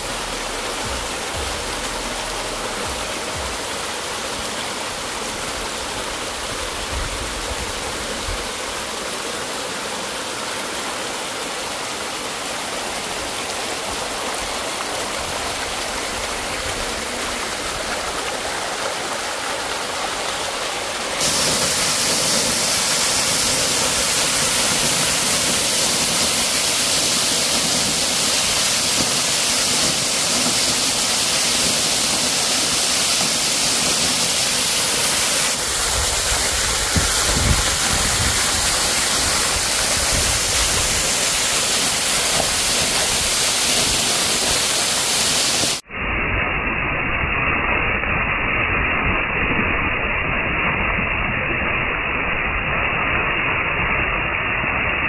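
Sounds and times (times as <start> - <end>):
water pouring down rock face: 0.0 - 45.9
waterfall rushing: 0.0 - 45.9
water tumbling over rocks: 12.7 - 45.8.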